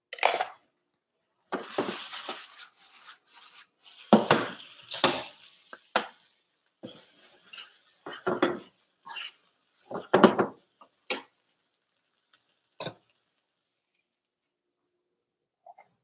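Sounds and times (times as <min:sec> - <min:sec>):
utensil scraping a pan: 0:01.6 - 0:05.4.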